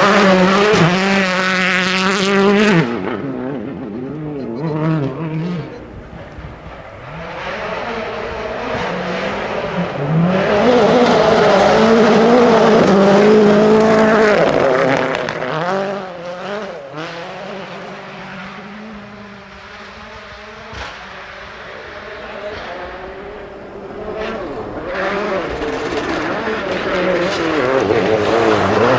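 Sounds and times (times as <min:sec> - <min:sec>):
rally car engine at full speed: 0:00.0 - 0:28.9.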